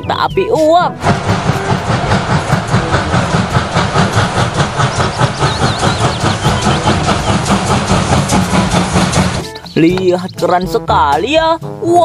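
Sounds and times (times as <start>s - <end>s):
steam locomotive chuffing: 0.7s - 10.7s
steam hissing: 1.0s - 9.8s.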